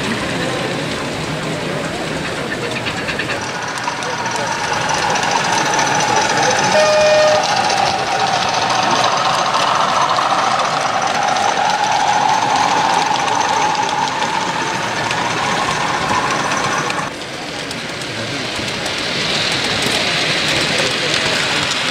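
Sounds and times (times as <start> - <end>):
background hubbub: 0.0 - 21.9
model train drone: 0.0 - 21.9
short steady tone: 6.4 - 8.2.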